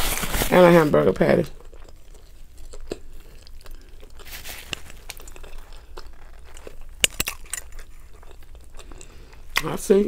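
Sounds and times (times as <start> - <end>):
paper crinkling: 0.0 - 1.0, 4.1 - 8.1.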